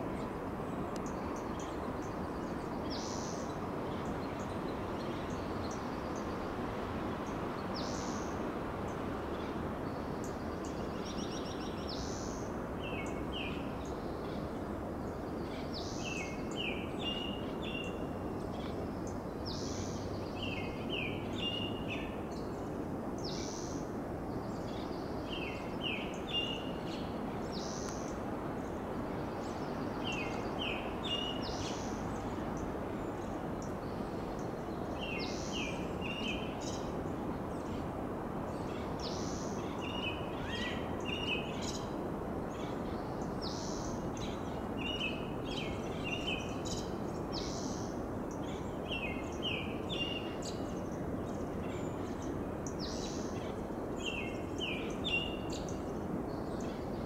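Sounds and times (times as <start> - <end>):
robin singing: 9.3 - 14.5, 15.1 - 22.6, 24.4 - 28.2, 29.2 - 32.4, 33.0 - 36.9, 38.5 - 57.0.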